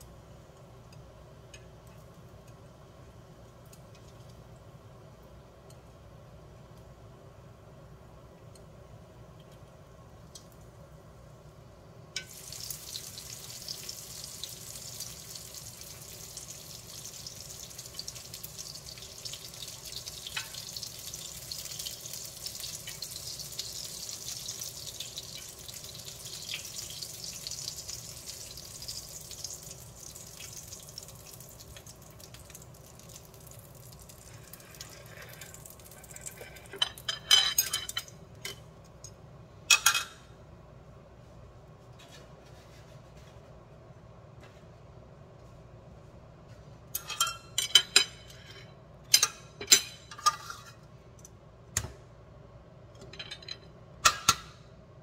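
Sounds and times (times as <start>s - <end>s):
steak sizzling in frying pan: 12.3s - 31.9s.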